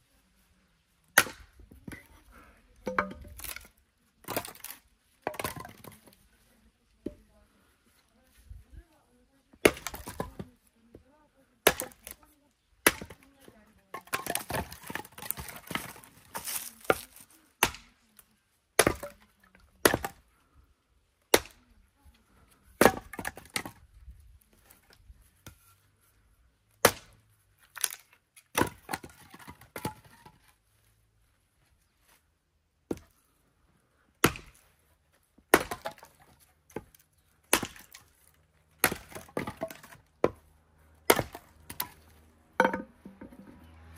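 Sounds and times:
axe chopping firewood: 1.1s - 2.2s, 2.8s - 6.2s, 9.5s - 11.0s, 11.6s - 18.0s, 18.7s - 20.3s, 21.2s - 21.6s, 22.6s - 25.7s, 26.8s - 30.5s, 32.8s - 33.2s, 34.1s - 43.9s
wood clattering: 2.8s - 6.2s, 13.9s - 17.0s, 38.8s - 40.4s, 41.1s - 43.7s.

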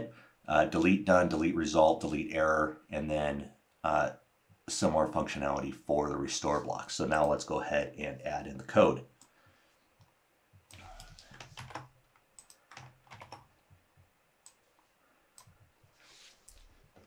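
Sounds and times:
computer keyboard keystrokes: 10.7s - 13.5s.

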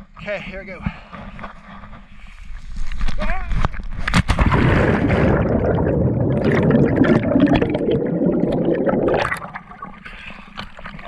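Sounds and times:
underwater rushing bubbling water: 4.3s - 11.0s.

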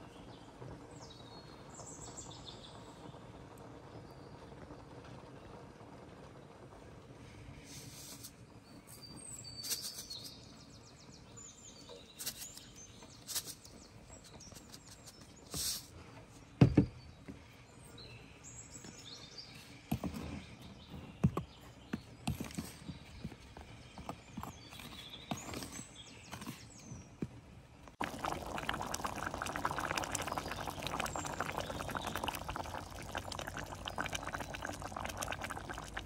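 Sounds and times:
low outdoor background: 0.0s - 36.0s
birds chirping: 16.2s - 36.0s.

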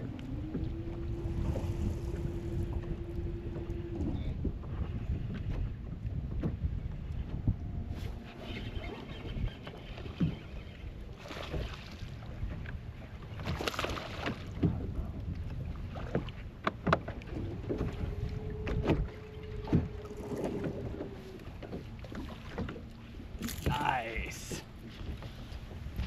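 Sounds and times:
wind on microphone: 0.0s - 21.9s
water slapping against boat hull: 11.2s - 26.0s.

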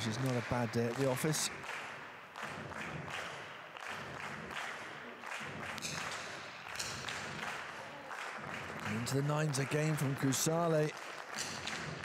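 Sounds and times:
spectators clapping: 0.0s - 12.0s.

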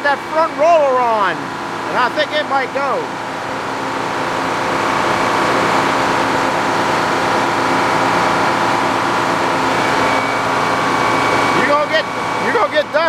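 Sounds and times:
sawmill saw running: 0.0s - 13.0s.

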